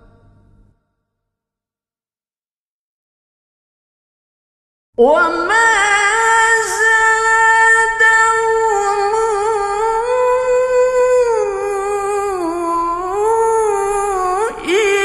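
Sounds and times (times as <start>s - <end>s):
person reciting melodically: 5.0s - 15.0s.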